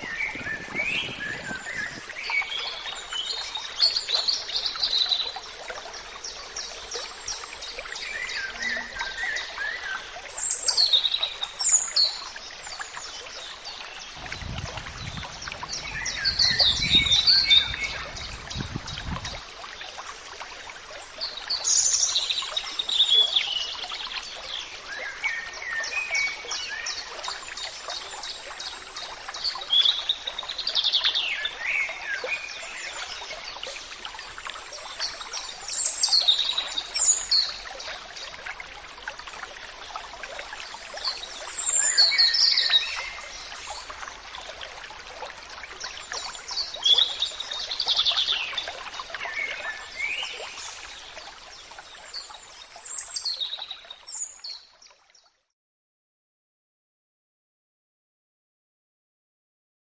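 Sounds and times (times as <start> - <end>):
running water hiss: 14.0 - 20.3
birds chirping and singing: 14.2 - 19.4.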